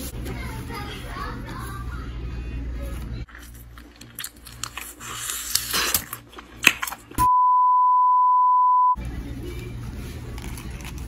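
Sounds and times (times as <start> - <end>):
steady beep tone: 7.2 - 9.0.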